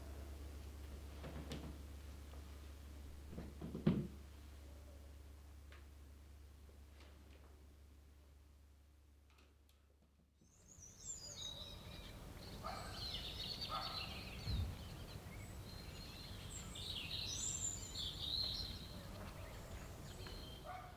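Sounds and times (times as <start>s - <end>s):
small birds chirping: 10.4s - 20.9s.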